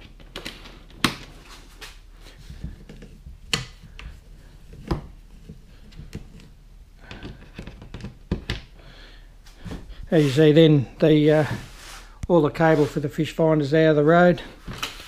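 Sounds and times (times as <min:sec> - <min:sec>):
plastic fittings clicking and knocking: 0:02.8 - 0:08.7.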